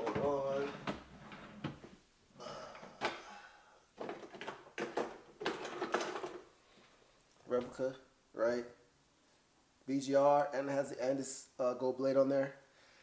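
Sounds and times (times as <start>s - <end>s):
rustling and scraping objects: 4.0s - 7.9s.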